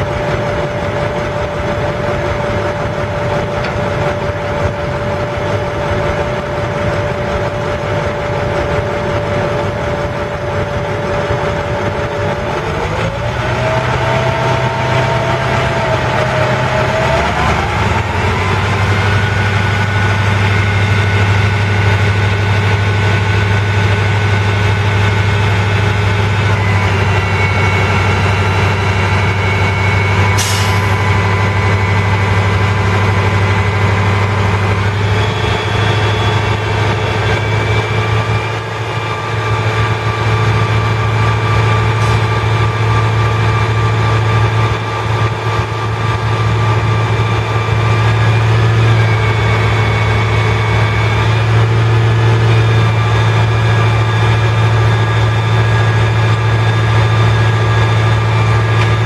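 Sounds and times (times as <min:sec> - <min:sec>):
diesel engine running: 0:00.0 - 0:59.0
engine whining tones: 0:00.0 - 0:59.0.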